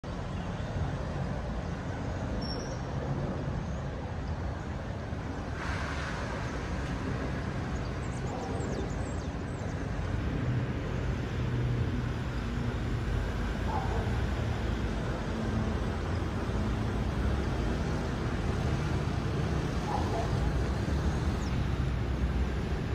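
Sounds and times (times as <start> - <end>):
distant city traffic rumble: 0.0 - 22.9
brief hiss: 5.5 - 6.5.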